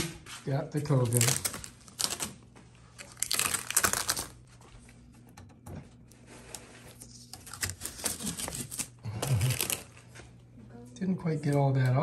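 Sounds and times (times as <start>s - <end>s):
tape peeling with crackling rip: 3.0s - 4.4s, 7.2s - 9.9s.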